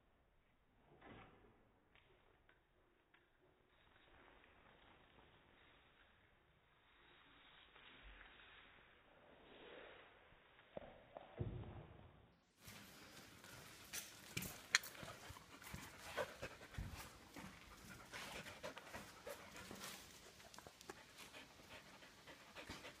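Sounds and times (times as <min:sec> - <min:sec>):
dog panting: 0:14.7 - 0:23.0.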